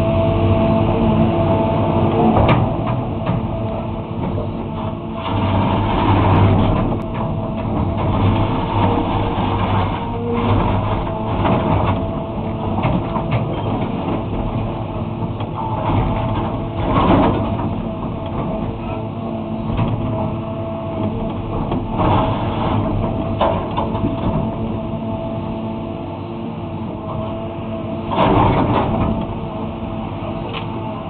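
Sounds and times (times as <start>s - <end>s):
excavator diesel engine running: 0.0s - 31.0s
bucket scraping and breaking asphalt: 4.7s - 14.3s.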